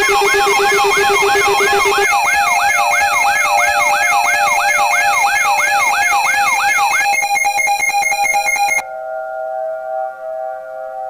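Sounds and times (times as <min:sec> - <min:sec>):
electronic siren wail: 0:00.0 - 0:08.8
rapid pulsing beeps: 0:00.0 - 0:08.8
steady alarm tones: 0:00.0 - 0:08.8.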